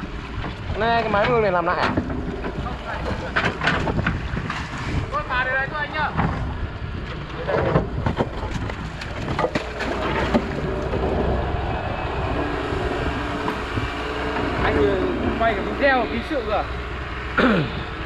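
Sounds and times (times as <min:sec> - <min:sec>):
diesel engine under load: 0:00.0 - 0:18.0
wind buffeting microphone: 0:00.0 - 0:18.0
bucket scraping earth and rock: 0:00.8 - 0:05.2, 0:07.2 - 0:11.5.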